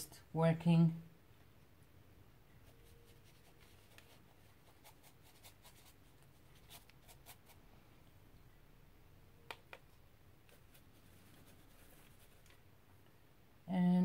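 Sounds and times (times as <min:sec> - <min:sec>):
paintbrush scratching on paper: 0:02.6 - 0:07.6, 0:10.5 - 0:12.6.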